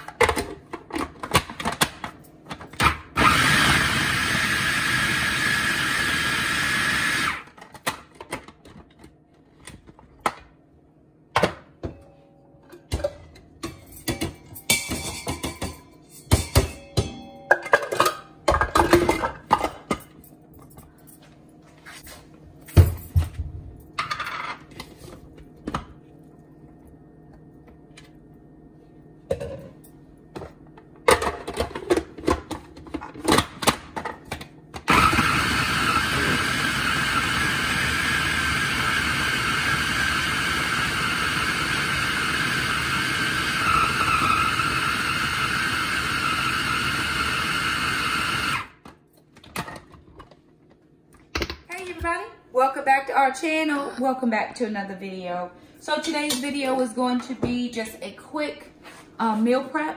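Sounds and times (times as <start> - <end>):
food processor motor running: 3.2 - 7.5, 34.9 - 48.8.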